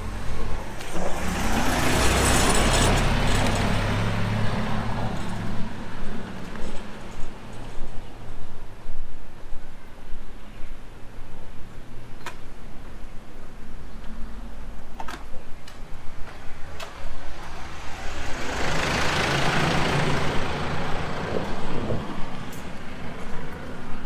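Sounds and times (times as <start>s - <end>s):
vehicle passing by: 0.0s - 6.9s, 17.2s - 24.0s.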